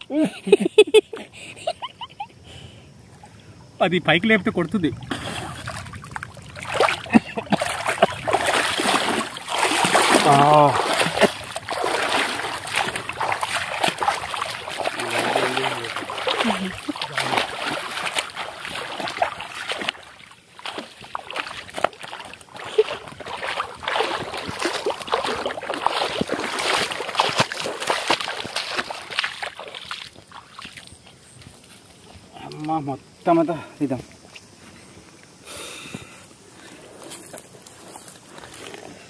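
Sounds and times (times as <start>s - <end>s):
bare feet splashing through water: 4.6s - 33.4s.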